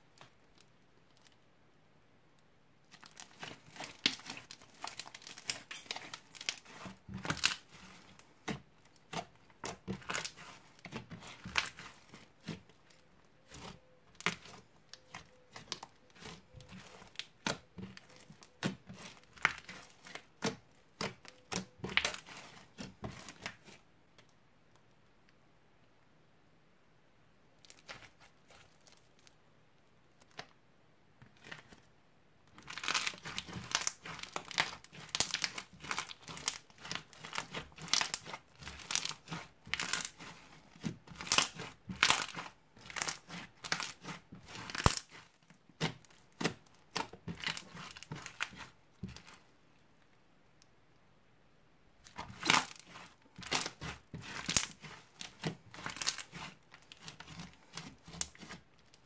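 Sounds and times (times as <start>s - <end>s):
crunchy slime crackling and popping: 2.9s - 23.8s, 32.5s - 49.4s, 52.0s - 59.0s.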